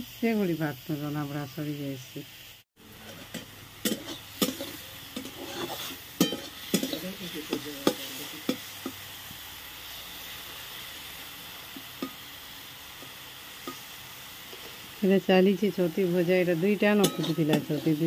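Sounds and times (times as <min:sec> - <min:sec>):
mushrooms sizzling in oil: 0:00.0 - 0:18.0
spatula scraping a pan: 0:02.9 - 0:09.0, 0:16.8 - 0:18.0.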